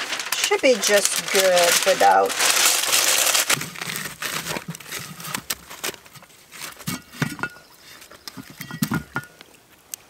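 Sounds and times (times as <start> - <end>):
cast iron pot clanking on grate: 6.8 - 9.4.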